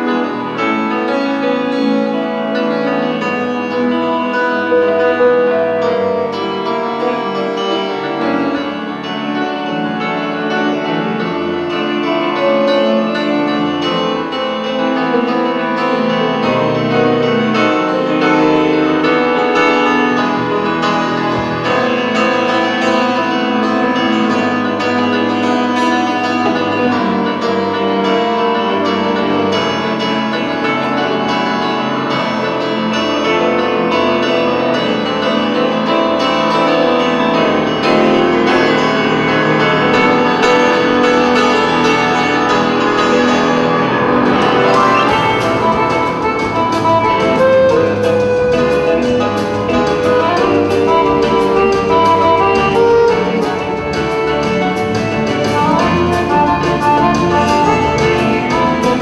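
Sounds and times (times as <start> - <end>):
accordion: 0.0 - 59.0
grand piano: 0.0 - 59.0
bass guitar: 2.1 - 59.0
violin: 34.0 - 59.0
drums: 40.5 - 59.0.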